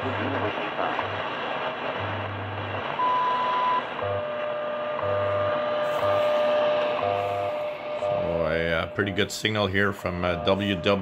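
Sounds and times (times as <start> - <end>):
low pulsing hum: 0.0 - 11.0
radio static hiss: 0.0 - 11.0
steady lower tone: 0.0 - 11.0
long high beep: 3.0 - 11.0.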